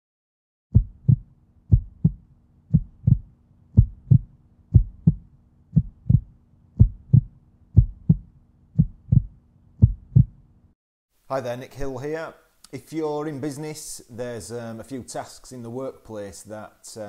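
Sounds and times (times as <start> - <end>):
heartbeat thumps: 0.7 - 10.4.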